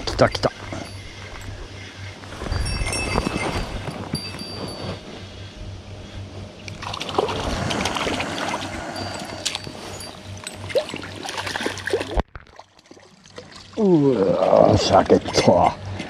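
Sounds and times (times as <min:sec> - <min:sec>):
water sloshing and splashing: 0:06.7 - 0:16.0.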